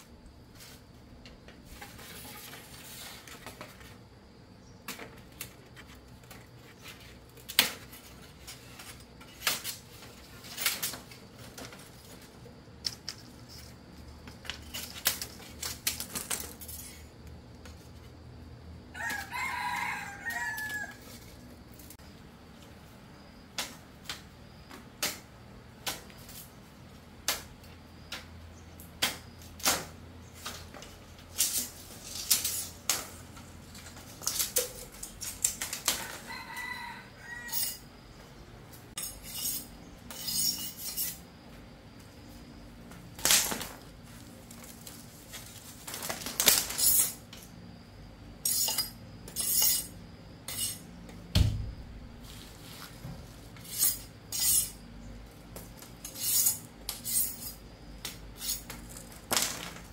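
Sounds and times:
rooster crowing: 18.9 - 21.3, 35.9 - 37.9.

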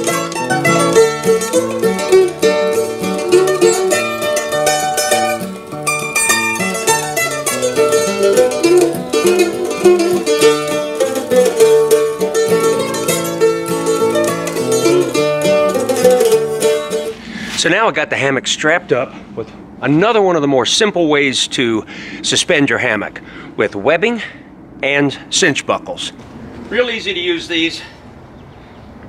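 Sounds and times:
plucked string instrumental music: 0.0 - 17.5.

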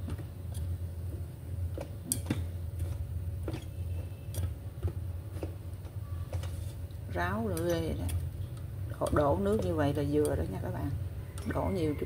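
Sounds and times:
steady low hum: 0.0 - 12.0
chopsticks clicking against metal pot: 7.4 - 10.6.

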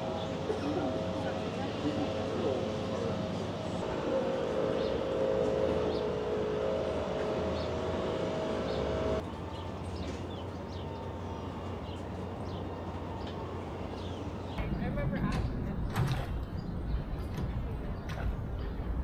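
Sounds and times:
birds chirping: 0.0 - 15.1
steady droning hum: 0.0 - 15.2.

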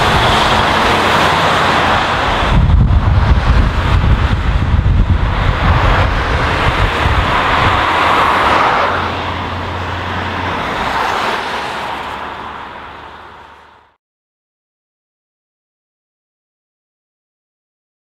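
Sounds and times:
car tyre noise: 0.0 - 14.0
truck exhaust rumble: 0.0 - 14.0.

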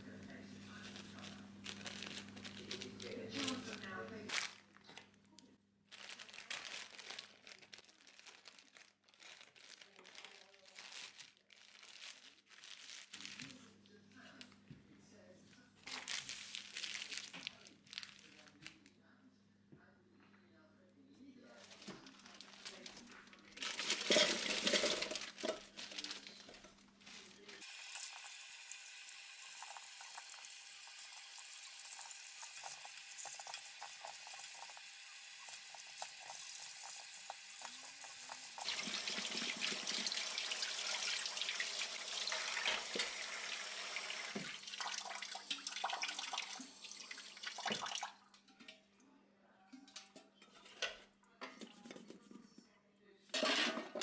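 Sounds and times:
plastic bag crinkling: 0.7 - 5.2, 5.9 - 13.7, 15.8 - 18.9, 21.6 - 38.7
potatoes scrubbed by hand: 27.6 - 40.6.

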